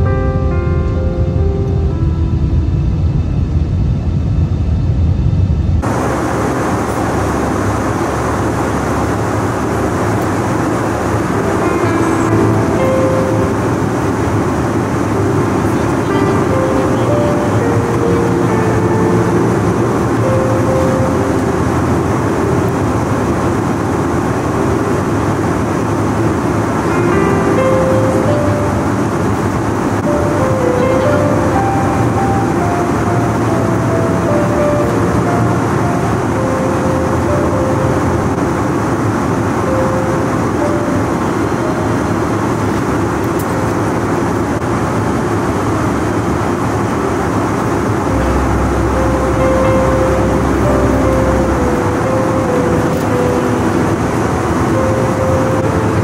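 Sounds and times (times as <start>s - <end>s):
airplane engines and airflow in cabin: 0.0s - 56.0s.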